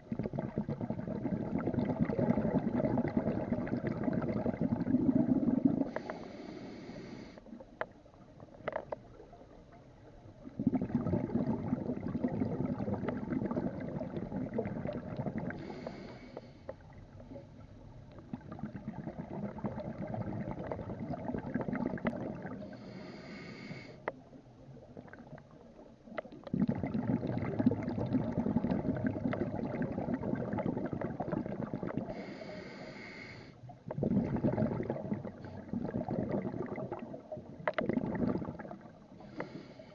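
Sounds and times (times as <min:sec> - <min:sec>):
bubbling exhalation: 0:00.0 - 0:06.2, 0:10.5 - 0:16.1, 0:18.2 - 0:22.8, 0:26.4 - 0:32.4, 0:33.9 - 0:39.7
regulator hissing inhalations: 0:05.9 - 0:07.4, 0:15.6 - 0:16.6, 0:22.7 - 0:24.0, 0:32.1 - 0:33.6, 0:39.2 - 0:39.9.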